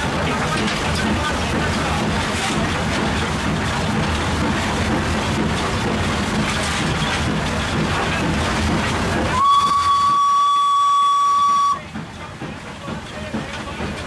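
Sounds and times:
steam locomotive rumble and hiss: 0:00.0 - 0:14.0
steam whistle high note: 0:09.3 - 0:11.8.

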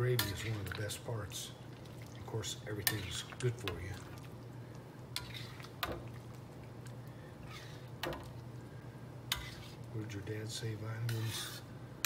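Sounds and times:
steady low hum: 0:00.0 - 0:12.0
metal spatula scraping a wok: 0:05.2 - 0:05.7, 0:07.4 - 0:07.8, 0:09.3 - 0:09.8, 0:11.0 - 0:11.7.

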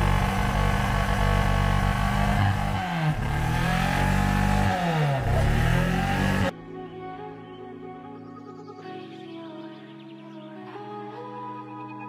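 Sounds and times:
car engine running: 0:00.0 - 0:06.5.

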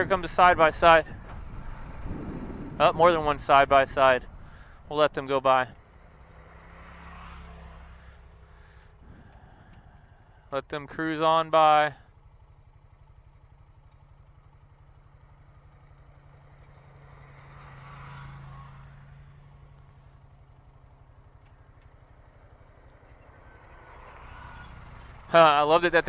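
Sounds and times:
vehicles driving past: 0:00.0 - 0:26.0
atv engine idling: 0:07.9 - 0:17.7, 0:19.4 - 0:26.0.

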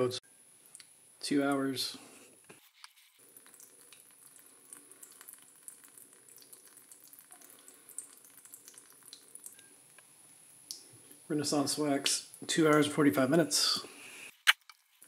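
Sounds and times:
small drip ticks: 0:00.6 - 0:00.9, 0:03.2 - 0:10.9
faucet water trickling into basin: 0:03.2 - 0:09.7.

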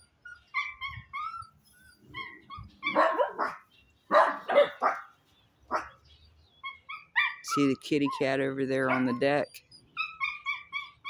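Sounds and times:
small dogs whining: 0:00.0 - 0:05.0, 0:06.6 - 0:11.0
dogs barking sharply: 0:02.1 - 0:06.0, 0:08.8 - 0:11.0.

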